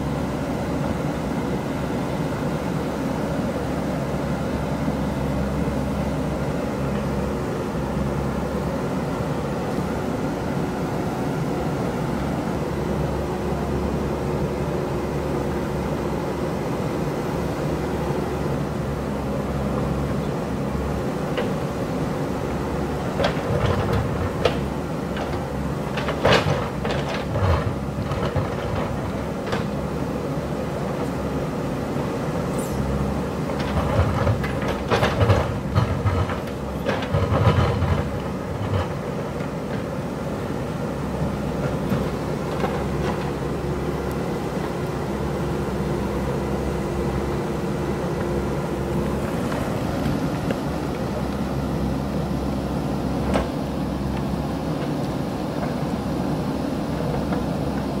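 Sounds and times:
diesel engine running under load: 0.0s - 58.0s.

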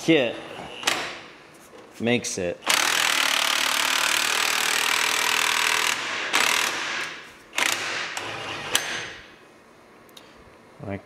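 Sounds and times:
cordless impact wrench running: 2.6s - 9.2s.

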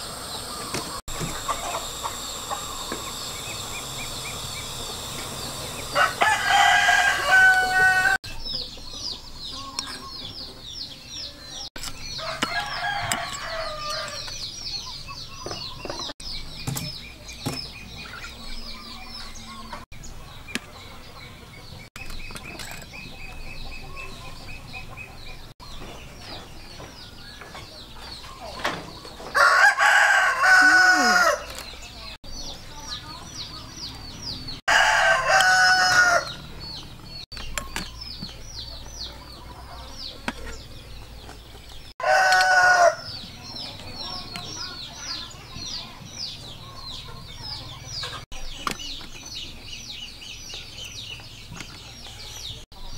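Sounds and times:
roosters crowing: 0.0s - 8.2s, 12.0s - 14.4s, 29.1s - 31.7s, 34.5s - 37.2s, 42.0s - 43.6s
fast high chirping: 0.0s - 8.4s.

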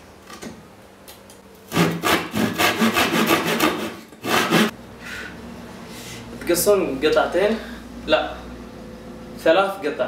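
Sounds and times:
hand saw cutting wood: 1.7s - 4.8s.

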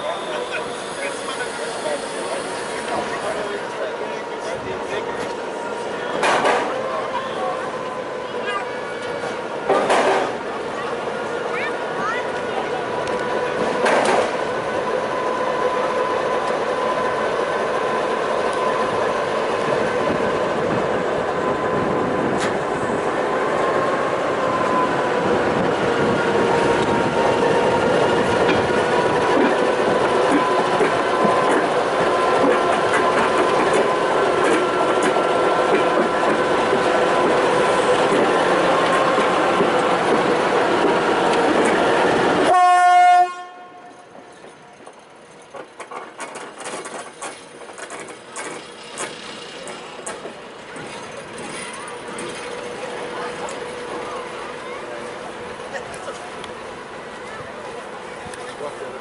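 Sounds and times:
diesel locomotive engine humming: 0.0s - 59.0s.

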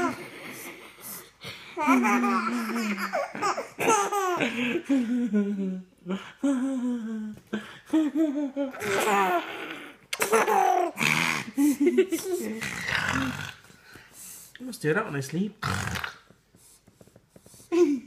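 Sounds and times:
baby laughing: 1.8s - 5.0s, 8.6s - 11.0s.

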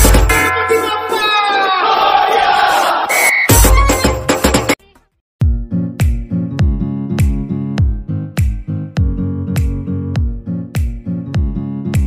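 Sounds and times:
music: 0.0s - 1.3s, 3.5s - 12.0s
crowd noise: 0.5s - 4.5s
crowd shouting: 0.6s - 4.3s.

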